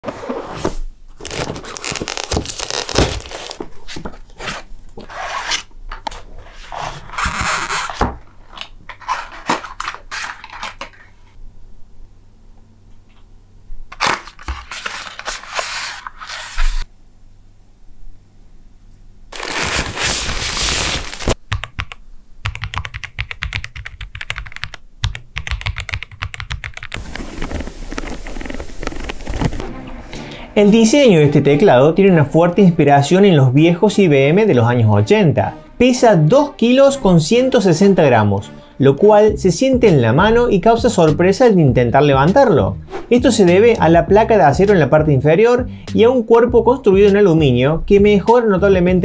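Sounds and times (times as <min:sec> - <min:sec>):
paper rustling and scraping: 0:00.0 - 0:11.2, 0:13.9 - 0:16.9, 0:19.3 - 0:21.4, 0:27.0 - 0:29.6
fast typing on mechanical keyboard: 0:21.5 - 0:27.0.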